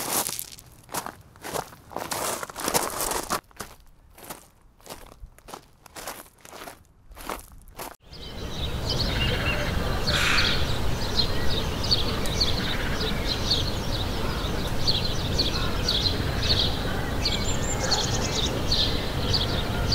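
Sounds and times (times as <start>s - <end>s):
crunching footsteps: 0.0s - 8.0s
birds chirping and singing: 6.0s - 19.9s.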